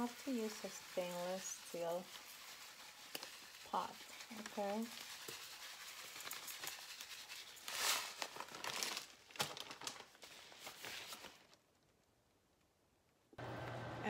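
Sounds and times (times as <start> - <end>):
crystals pouring into metal pot: 0.0 - 8.6
plastic bag crinkling: 0.0 - 11.6.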